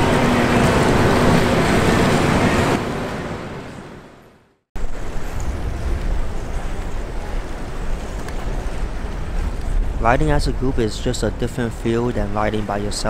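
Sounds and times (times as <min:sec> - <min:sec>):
street noise: 0:00.0 - 0:13.0
rushing wind on microphone: 0:04.8 - 0:13.0.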